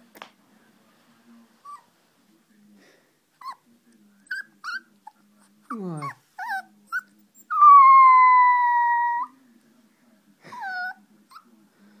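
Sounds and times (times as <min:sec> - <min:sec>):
puppy whining: 0:01.6 - 0:01.9, 0:03.4 - 0:09.4, 0:10.5 - 0:11.5.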